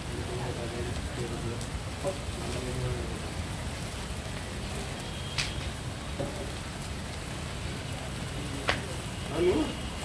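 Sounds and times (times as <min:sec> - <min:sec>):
fire crackling and hissing: 0:00.0 - 0:10.0
sharp pop of burning wood: 0:05.2 - 0:06.5, 0:08.6 - 0:08.9.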